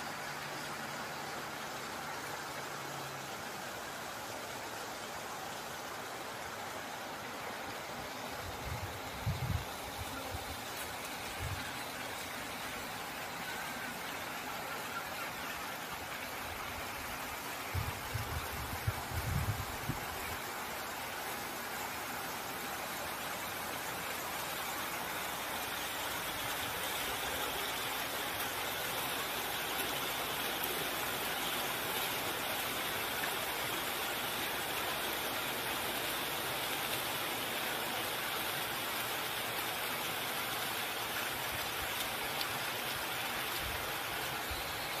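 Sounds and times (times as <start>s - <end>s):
fountain water splashing: 0.0s - 45.0s.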